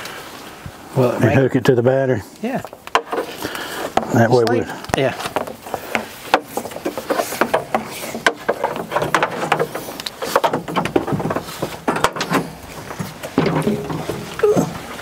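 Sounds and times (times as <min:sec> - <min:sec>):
metal parts clanking: 0:07.0 - 0:14.3.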